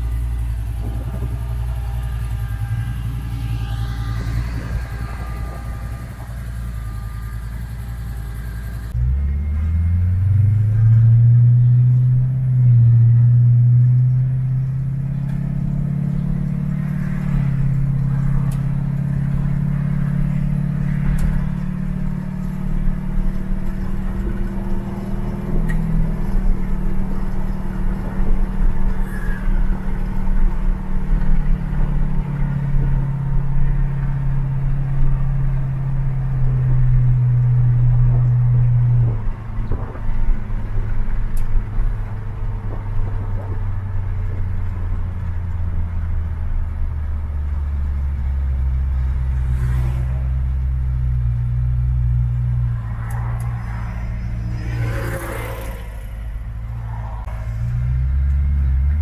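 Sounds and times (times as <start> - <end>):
truck engine idling: 0.0 - 11.0
truck engine accelerating: 0.0 - 59.0.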